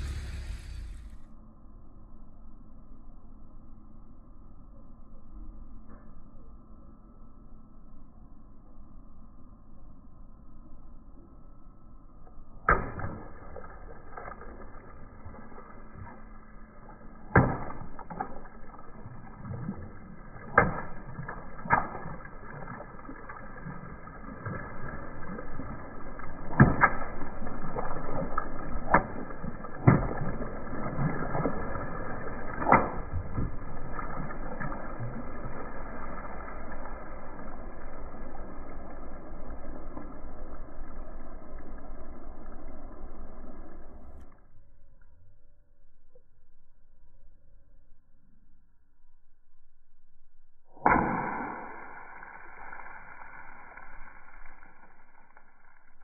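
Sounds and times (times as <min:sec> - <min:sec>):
water balloons popping: 0:12.6 - 0:36.1, 0:50.7 - 0:56.0
water splashing on pavement: 0:12.7 - 0:40.5.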